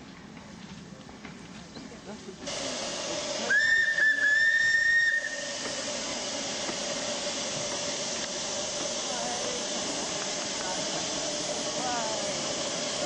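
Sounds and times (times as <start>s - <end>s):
steam hissing: 2.3s - 13.0s
steam whistle blast: 3.4s - 5.7s.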